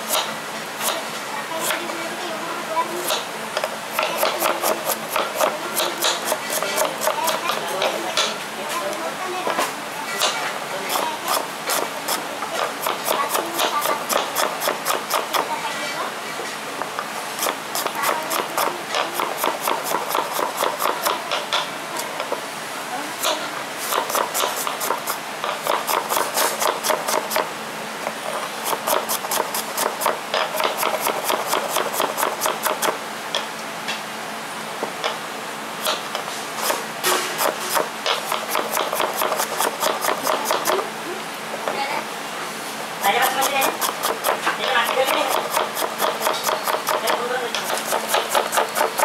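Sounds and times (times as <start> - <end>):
knife chopping on wooden board: 3.0 - 8.3, 10.9 - 15.5, 17.4 - 22.3, 23.2 - 27.5, 28.6 - 33.0, 35.8 - 40.8, 43.2 - 49.0.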